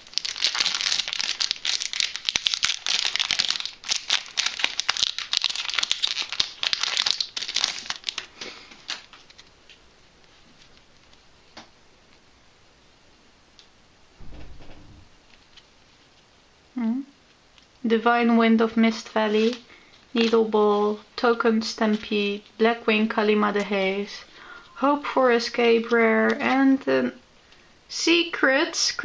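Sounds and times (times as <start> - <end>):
foil wrapper tearing and crinkling: 0.0 - 9.5
low thump: 14.2 - 15.2.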